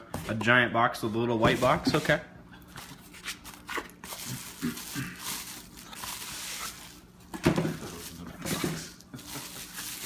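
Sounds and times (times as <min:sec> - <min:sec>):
cardboard boxes rustling: 0:02.8 - 0:10.0
bubble wrap crinkling: 0:02.9 - 0:10.0.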